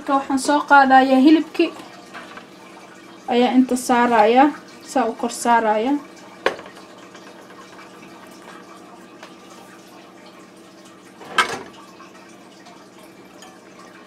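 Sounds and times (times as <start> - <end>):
faint kitchen hum: 0.0 - 14.0
dish clatter: 11.2 - 11.7.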